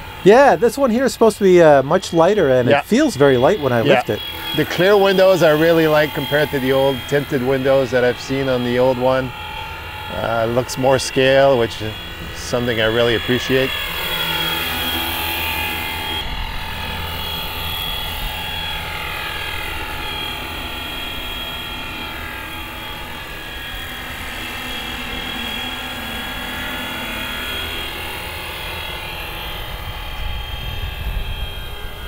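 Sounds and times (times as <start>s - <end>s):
rc helicopter whine: 0.0s - 32.0s.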